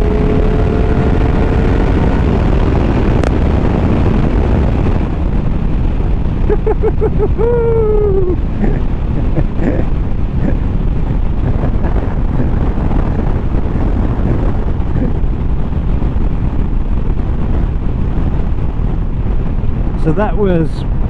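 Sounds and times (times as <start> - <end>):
motorcycle engine at high revs: 0.0 - 5.3
wind noise on microphone: 0.0 - 21.0.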